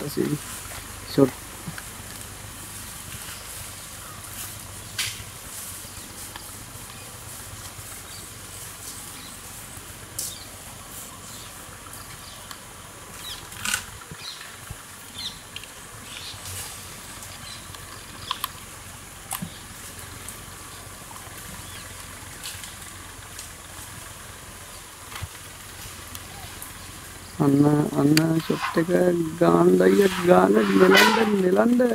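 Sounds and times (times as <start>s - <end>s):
steady background hiss: 0.0s - 31.9s
twigs snapping and rustling: 0.2s - 9.2s, 11.9s - 24.2s, 25.0s - 27.0s.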